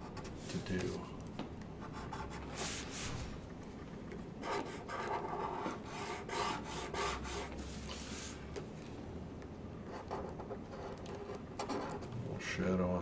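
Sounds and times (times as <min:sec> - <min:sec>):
marker stroking on paper: 0:01.8 - 0:03.3, 0:04.5 - 0:08.4.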